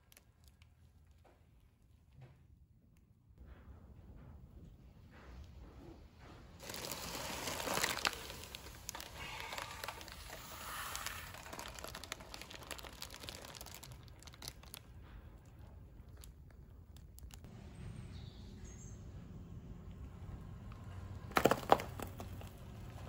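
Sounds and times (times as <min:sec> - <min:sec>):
plastic bag crinkling: 0:06.6 - 0:17.4, 0:21.3 - 0:23.0
car tyre squashing bread loaf: 0:21.3 - 0:23.0.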